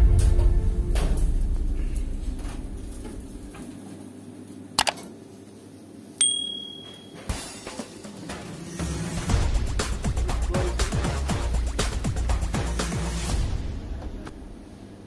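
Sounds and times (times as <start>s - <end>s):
background music: 0.0s - 2.4s, 6.7s - 14.3s
bright bell ding: 6.2s - 7.2s.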